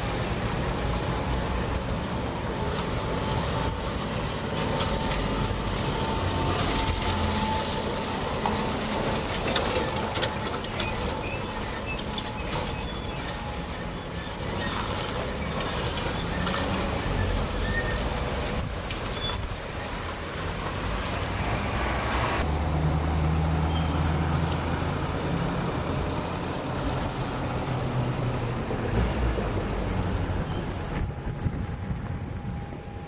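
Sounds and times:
street traffic: 0:00.0 - 0:33.0.

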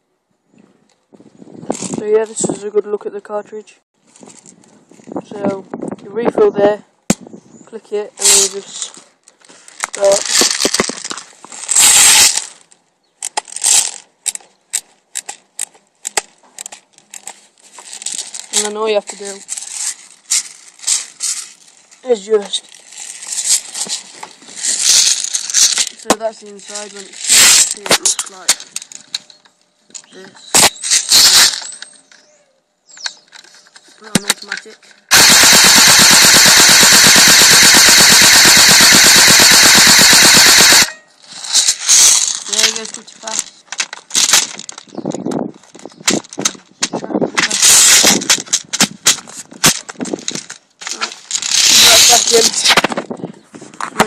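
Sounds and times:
magazine scraping: 0:33.3 - 0:43.0
sharp plastic clicks: 0:34.1 - 0:41.0
toy gun firing automatic: 0:35.1 - 0:41.0, 0:51.4 - 0:52.6.

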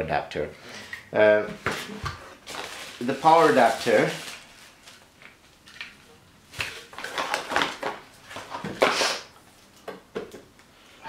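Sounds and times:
plastic bag crinkling: 0:02.4 - 0:05.8, 0:06.6 - 0:09.0.

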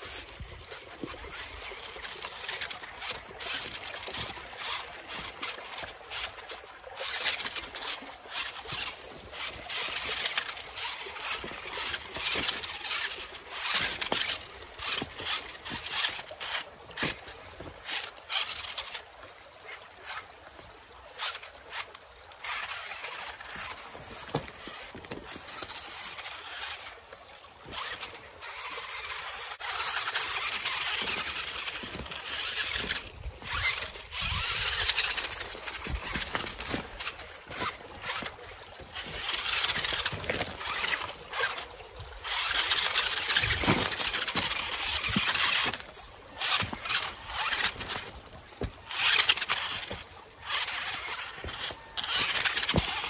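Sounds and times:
tyres crunching on rocks: 0:00.0 - 0:19.0, 0:21.2 - 0:26.9, 0:27.6 - 0:53.0
small electric motor whirring: 0:00.0 - 0:53.0.

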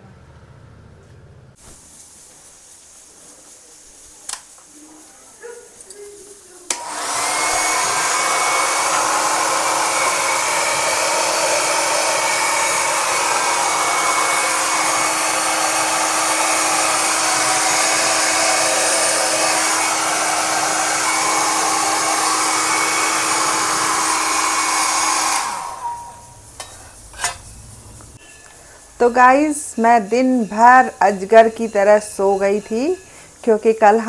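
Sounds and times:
hair dryer running: 0:06.7 - 0:26.8.

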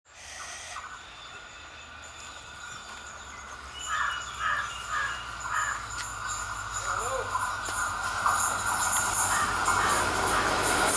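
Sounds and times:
bird calling: 0:03.7 - 0:06.4, 0:09.3 - 0:10.9.

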